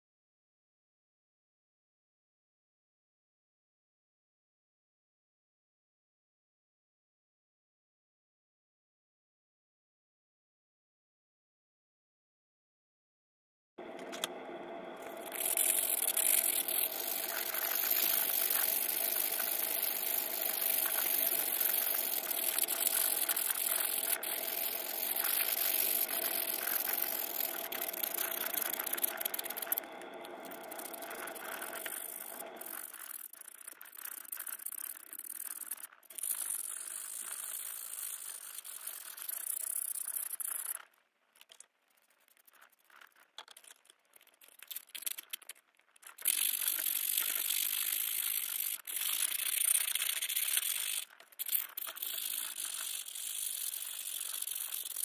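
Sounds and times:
brush scrubbing metal in liquid: 15.0 - 40.6, 46.2 - 55.0.

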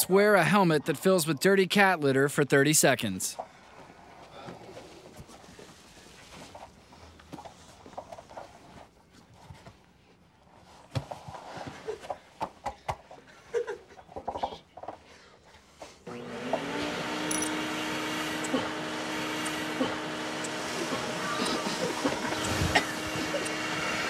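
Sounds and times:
vacuum motor humming: 16.1 - 24.0
scattered ticks: 20.4 - 23.6.

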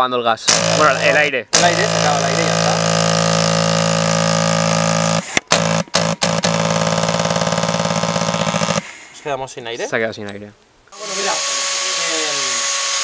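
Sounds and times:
airsoft gun firing full auto: 2.8 - 8.9.

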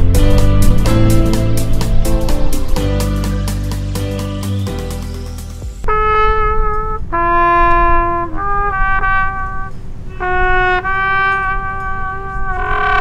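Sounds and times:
solo trumpet playing slow tune: 5.8 - 13.0.

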